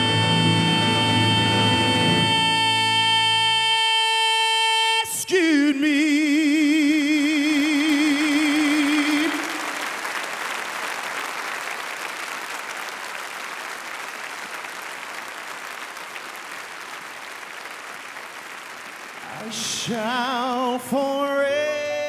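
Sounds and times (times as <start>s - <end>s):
audience applause: 7.6s - 21.9s.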